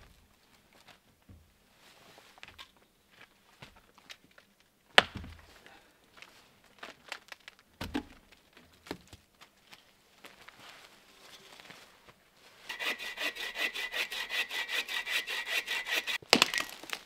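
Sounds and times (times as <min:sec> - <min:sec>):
rustling: 0:09.1 - 0:17.0.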